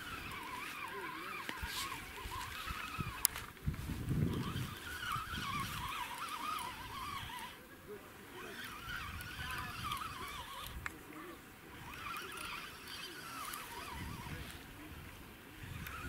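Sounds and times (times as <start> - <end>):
wind rumble on microphone: 1.6 - 7.4, 13.7 - 16.0.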